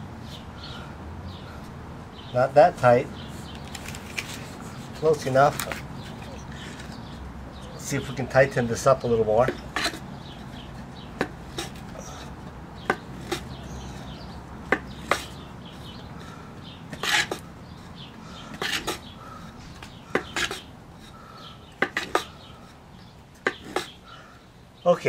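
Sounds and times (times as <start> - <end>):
wooden board rubbing: 9.4 - 16.3, 16.9 - 22.8, 23.4 - 24.0
sharp wooden knocks: 11.1 - 11.8, 12.8 - 13.6, 14.7 - 15.4, 19.8 - 20.7, 23.4 - 24.0.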